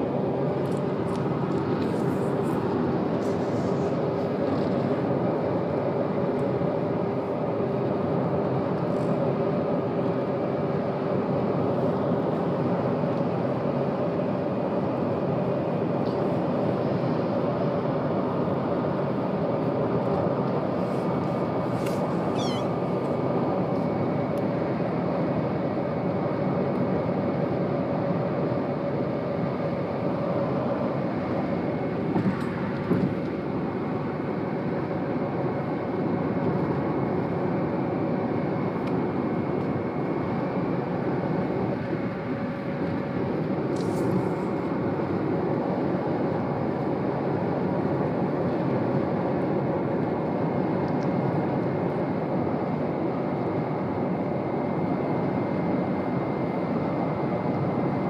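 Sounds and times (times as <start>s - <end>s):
car cabin road and engine noise: 0.0s - 24.6s
kitten mewing: 22.2s - 23.0s.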